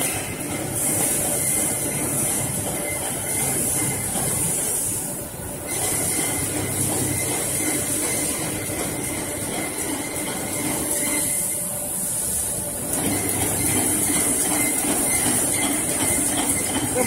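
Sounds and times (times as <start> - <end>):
packing machine clattering: 12.8 - 17.0.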